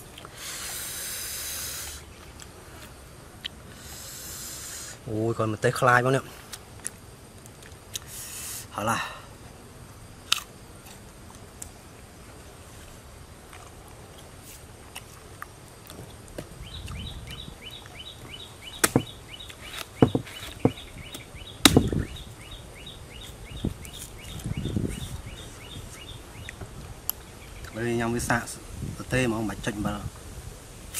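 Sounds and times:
knife cutting palm heart: 18.8 - 20.8
sharp cracks of slices splitting: 18.8 - 22.0
dull thumps: 18.8 - 22.1.

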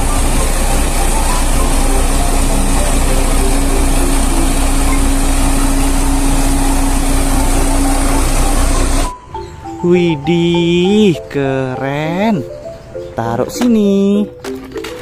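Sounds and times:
road roller diesel engine: 0.0 - 11.4
continuous hum: 0.0 - 15.0.

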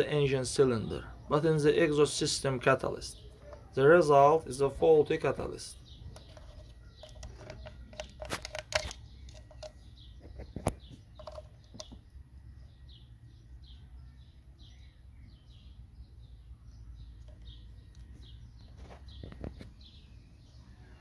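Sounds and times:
birds chirping: 0.0 - 21.0
plastic connector clicks and knocks: 10.4 - 12.0.

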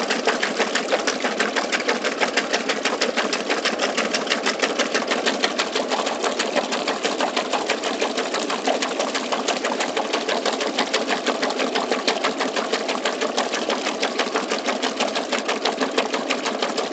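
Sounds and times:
washing machine rhythmic clatter: 0.0 - 16.9
water churning in tub: 0.0 - 16.9.

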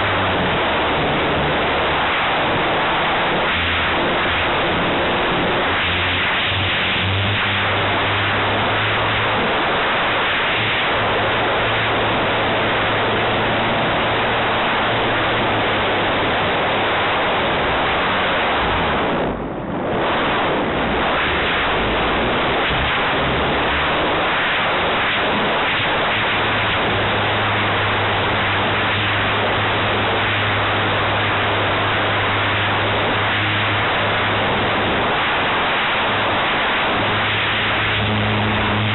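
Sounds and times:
air rush over microphone: 0.0 - 38.9
model airplane engine and propeller: 0.0 - 38.9.

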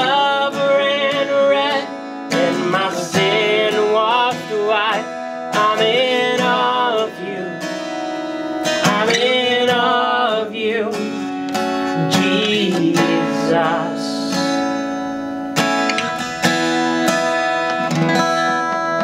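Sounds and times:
person singing: 0.0 - 14.7
strummed acoustic guitar: 0.0 - 19.0.

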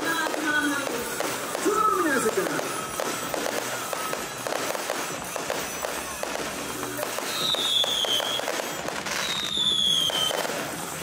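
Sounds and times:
fireworks crackling and popping: 0.0 - 11.0
high falling whistle: 7.2 - 8.6, 9.2 - 10.4.

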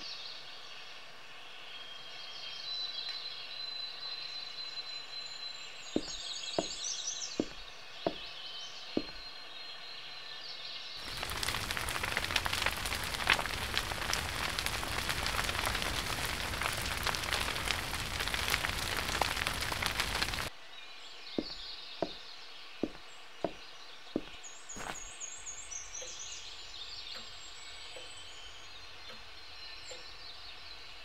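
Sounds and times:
birds chirping: 11.0 - 20.5
wood fire crackling in stove: 11.0 - 20.5.

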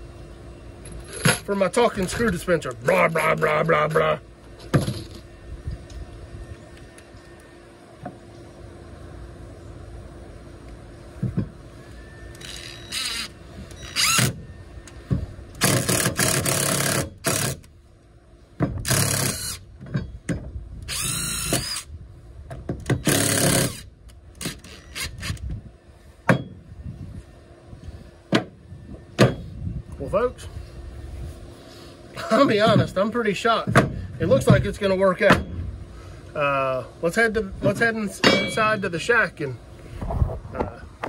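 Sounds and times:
cordless drill drilling into wood: 12.4 - 14.4, 15.6 - 17.6, 18.9 - 19.6, 20.9 - 21.9, 23.0 - 25.4.

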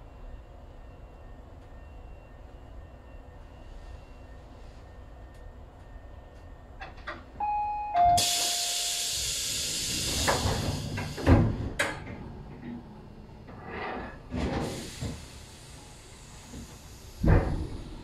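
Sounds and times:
two-tone door chime: 7.4 - 9.0
compressed air hiss: 8.2 - 11.4
train doors closing thud: 9.9 - 12.6, 16.6 - 18.0.

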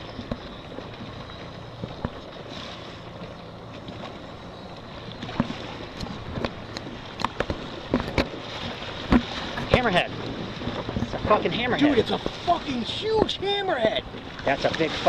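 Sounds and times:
water lapping around boat: 0.0 - 15.0
water slaps and splashes: 5.0 - 15.0
wind buffeting microphone: 5.2 - 15.0.

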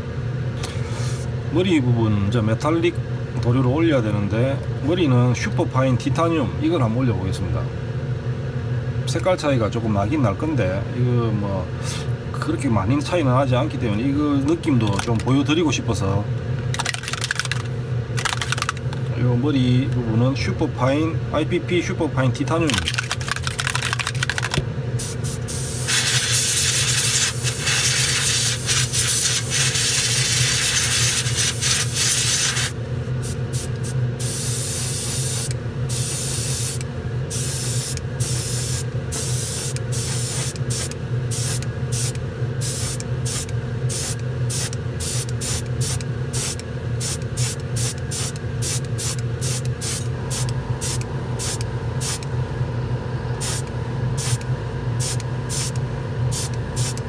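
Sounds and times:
steady low hum: 0.0 - 57.0
airbrush spraying hiss: 25.0 - 52.2, 53.4 - 53.6, 54.2 - 54.4, 55.0 - 57.0.

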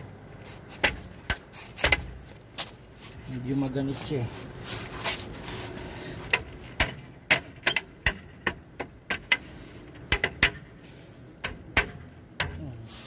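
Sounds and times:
hubcap clicking and knocking: 6.3 - 10.8.

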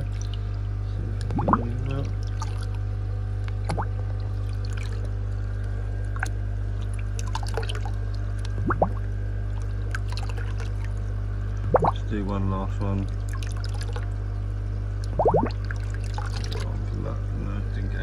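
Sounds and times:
water splashing and gurgling: 0.0 - 0.5, 1.2 - 2.9, 3.6 - 5.3, 6.0 - 12.1, 12.9 - 14.1, 15.0 - 16.8
low equipment hum: 0.0 - 18.0.

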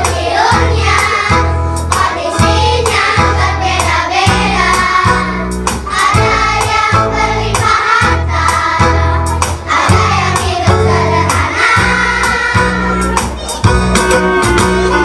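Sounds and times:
children singing together: 0.0 - 13.7
music with beat and bass: 0.0 - 15.0.

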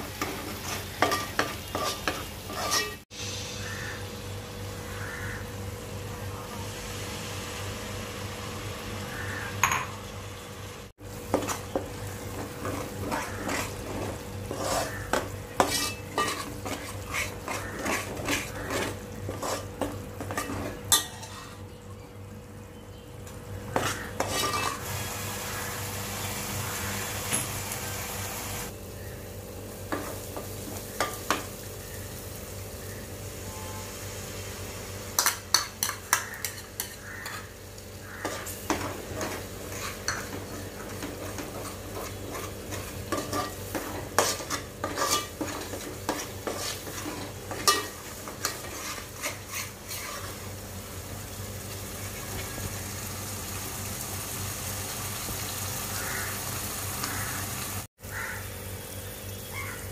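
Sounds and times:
masala sizzling: 0.0 - 59.9
spoon scraping metal pot: 0.2 - 3.0, 11.3 - 21.6, 23.7 - 24.8, 35.2 - 37.5, 38.1 - 50.4
spoon clinking against pot: 41.0 - 49.7.

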